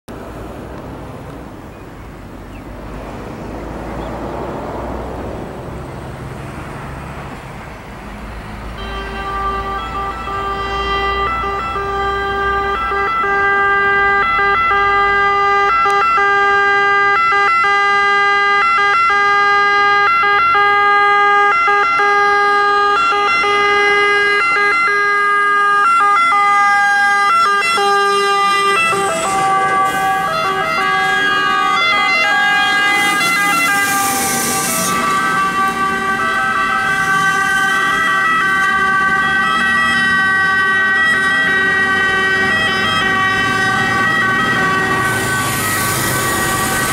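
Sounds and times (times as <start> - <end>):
truck engines running: 0.0 - 46.9
fire truck sirens: 1.6 - 46.9
short burst of hissing: 45.1 - 46.9.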